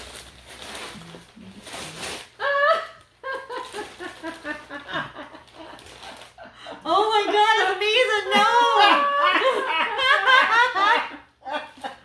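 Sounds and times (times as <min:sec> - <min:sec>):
wrapping paper crinkling: 0:00.0 - 0:06.5
women laughing loudly: 0:02.4 - 0:12.0.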